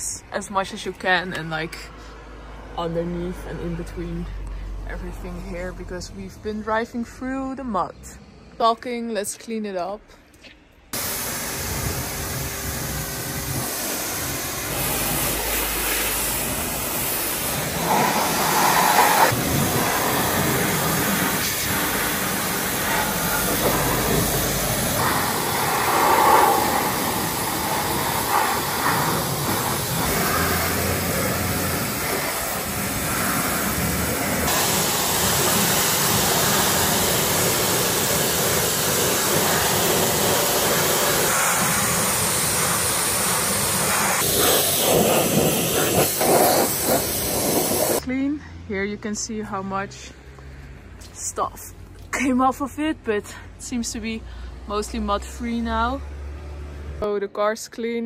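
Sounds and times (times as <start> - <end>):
pressure washer spraying: 11.0 - 48.0.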